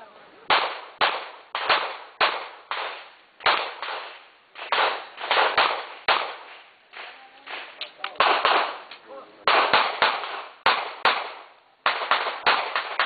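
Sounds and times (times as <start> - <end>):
gunshots with echo: 0.5 - 6.6, 7.5 - 8.9, 9.5 - 13.0.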